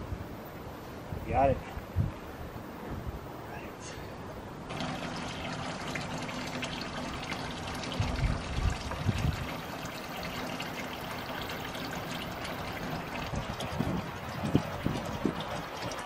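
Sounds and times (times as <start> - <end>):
water splashing into metal tank: 4.7 - 16.0.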